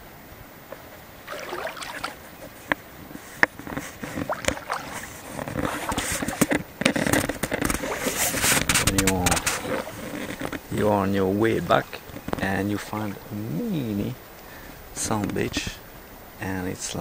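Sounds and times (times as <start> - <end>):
knocks and scrapes on canoe: 0.7 - 11.2
water splashing around canoe hull: 0.7 - 13.4.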